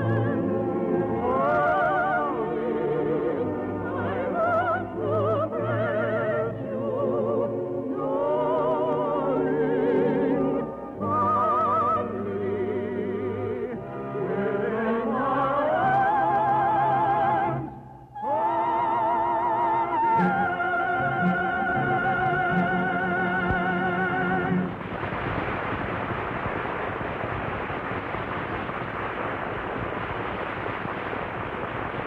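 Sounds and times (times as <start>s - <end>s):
operatic singing with vibrato: 0.0s - 24.7s
orchestral accompaniment: 18.3s - 24.8s.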